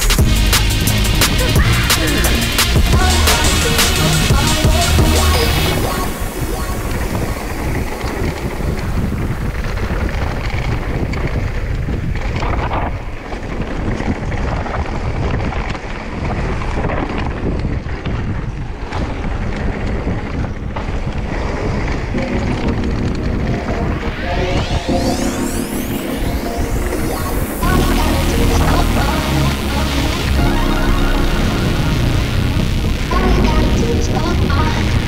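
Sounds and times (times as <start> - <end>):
wind buffeting microphone: 0.0 - 35.0
bike rattles and knocks: 7.2 - 22.9.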